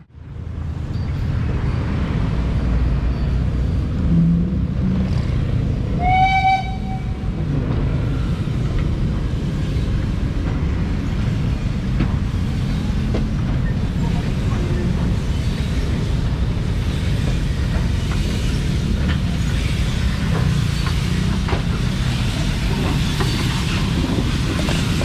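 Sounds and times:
train wheels rumbling on rails: 0.0s - 25.0s
steam whistle toot: 5.9s - 7.3s.

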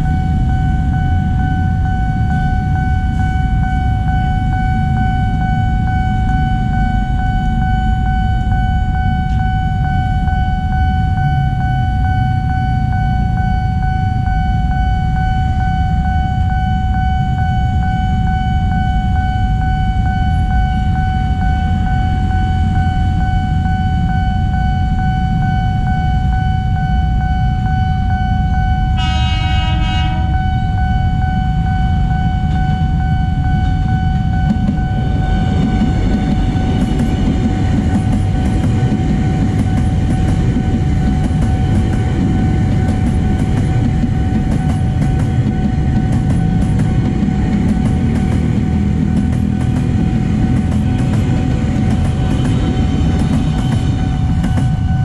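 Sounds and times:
level crossing alarm tone: 0.0s - 55.0s
traffic rumble: 0.0s - 55.0s
train horn blast: 28.9s - 30.9s.

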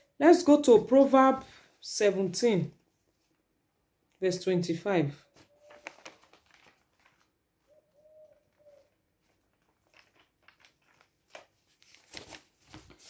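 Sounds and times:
dove cooing: 5.2s - 5.9s, 7.6s - 9.0s.

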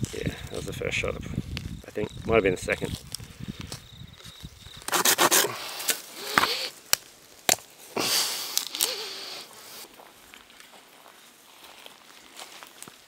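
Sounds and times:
rough rubbing and rustling: 4.2s - 6.8s.

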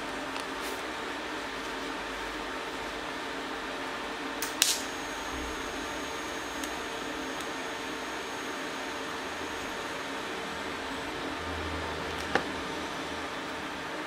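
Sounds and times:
welding arc crackle: 4.4s - 10.0s
welder hiss and hum: 4.4s - 12.9s.

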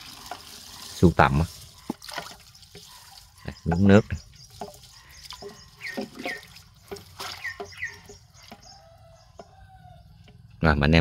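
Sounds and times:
water dripping: 0.0s - 9.6s
water sloshing and splashing: 0.0s - 9.6s.

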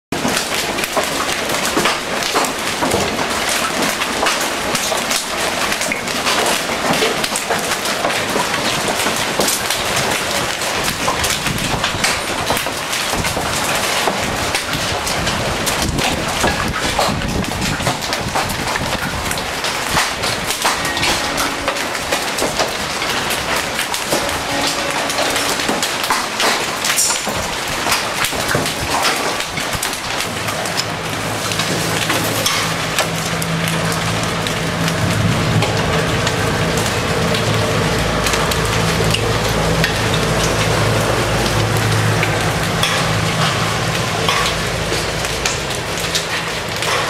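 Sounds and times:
hail and rain pelting down: 0.1s - 47.0s.

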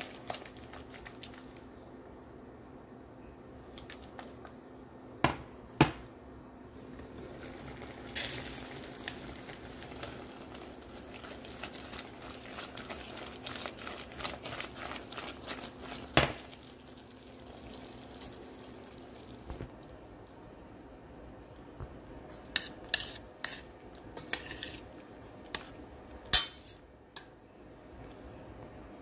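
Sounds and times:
syrup bubbling in a pot: 0.0s - 1.8s, 3.6s - 4.7s, 6.8s - 21.7s, 22.3s - 28.4s.

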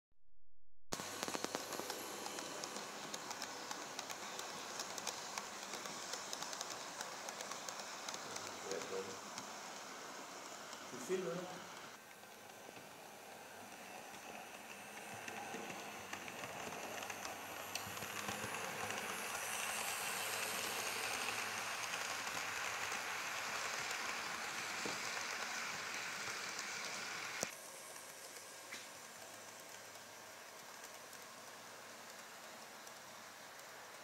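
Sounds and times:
model train wheels rattling on rails: 1.0s - 34.0s.

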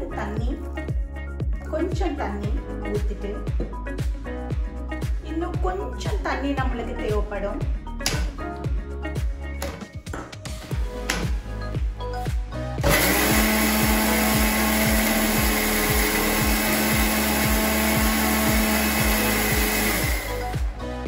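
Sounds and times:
mixer grinder motor running: 12.8s - 20.8s.

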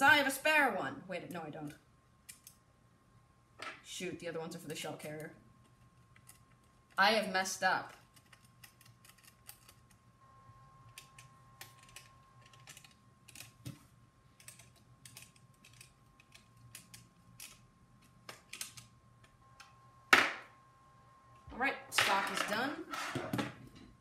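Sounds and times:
plastic parts clicking and tapping: 14.4s - 19.4s.

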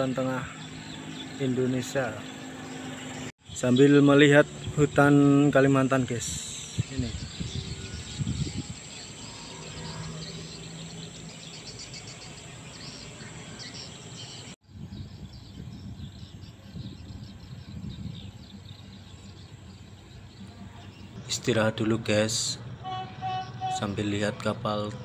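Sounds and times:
insects droning shrilly: 0.0s - 14.6s, 16.3s - 24.5s
low rumbling outdoor noise: 0.0s - 25.0s
faint chirps: 5.2s - 25.0s.

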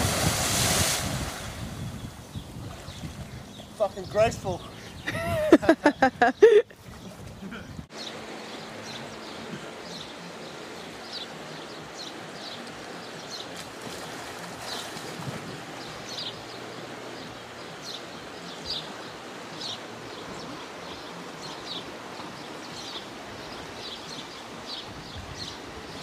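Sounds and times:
river water rushing: 0.0s - 1.8s, 7.9s - 26.0s.

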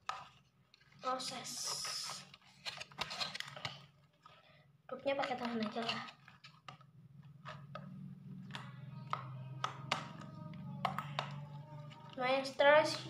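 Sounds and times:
soft background music: 7.6s - 13.0s.

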